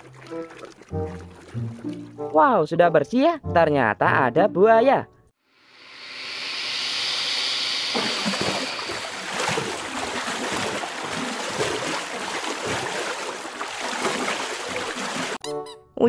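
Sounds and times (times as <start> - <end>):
rushing water-like noise: 5.7 - 15.4.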